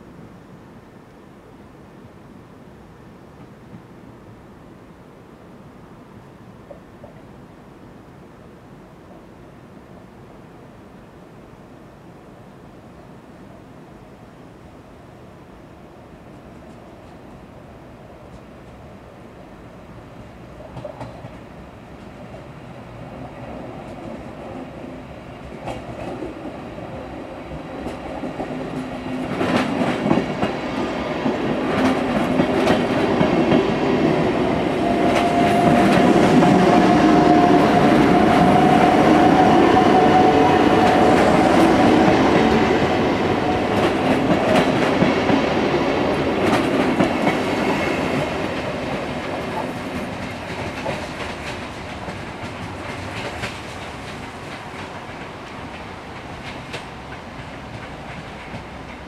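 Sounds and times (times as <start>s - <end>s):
train passing rumble: 12.5s - 59.0s.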